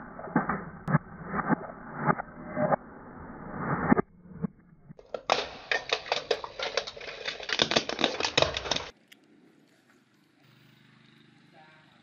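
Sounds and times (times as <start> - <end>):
plastic toys clicking on pavement: 5.0 - 9.3.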